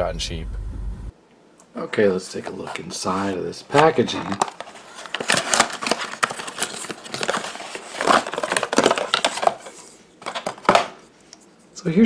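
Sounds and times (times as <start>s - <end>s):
cardboard carton rustling: 2.4s - 10.9s.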